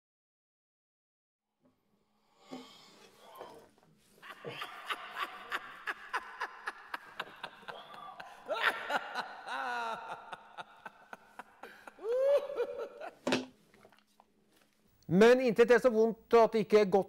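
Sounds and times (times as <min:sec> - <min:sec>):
man whimpering and groaning: 0:12.0 - 0:12.6.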